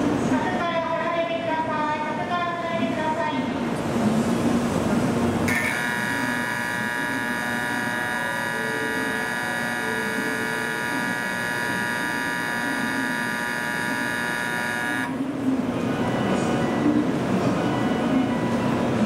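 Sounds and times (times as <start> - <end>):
buzzy electronic bell tone: 5.5 - 15.2.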